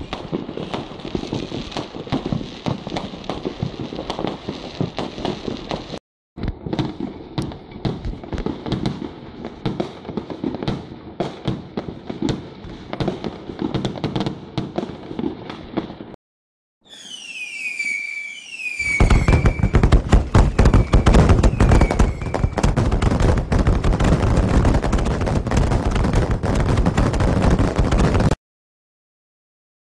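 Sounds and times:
fireworks popping and crackling: 0.0s - 16.2s, 16.9s - 28.4s
falling firework whistles: 16.8s - 22.8s.

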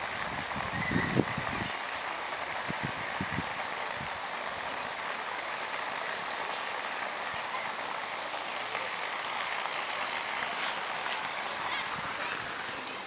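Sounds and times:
rainforest background hiss: 0.0s - 13.0s
faint high chirps: 9.6s - 12.3s.

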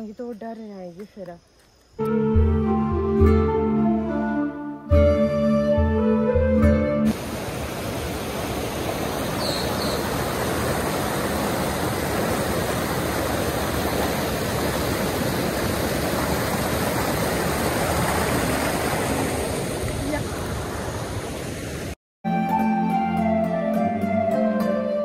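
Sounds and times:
background music: 2.0s - 7.1s, 22.3s - 25.0s
mountain stream over rocks: 7.1s - 22.0s.

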